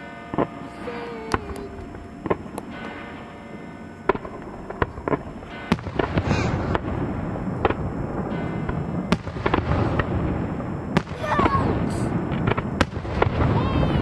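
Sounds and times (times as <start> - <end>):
firework shells bursting: 0.0 - 3.3, 3.9 - 14.0.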